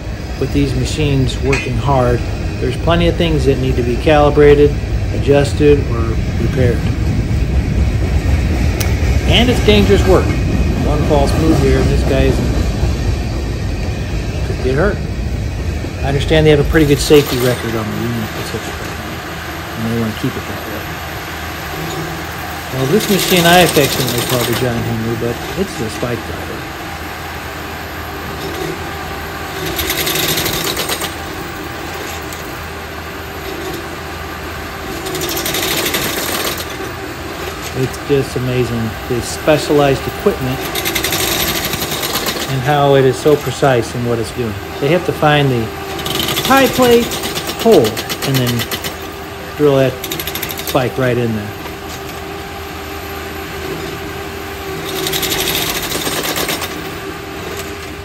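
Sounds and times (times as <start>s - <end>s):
machine engine running: 0.0s - 58.0s
spike driver hammering: 1.4s - 1.8s.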